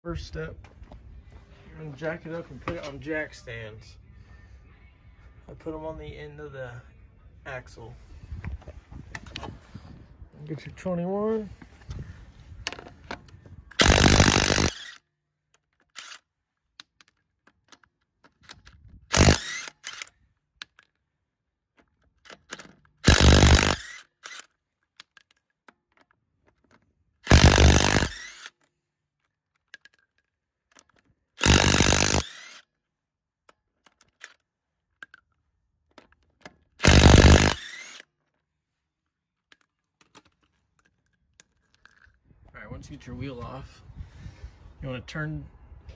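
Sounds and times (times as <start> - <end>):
impact wrench hammering: 13.8 - 14.8, 23.1 - 23.9, 27.3 - 28.2, 31.4 - 32.3, 36.8 - 37.7.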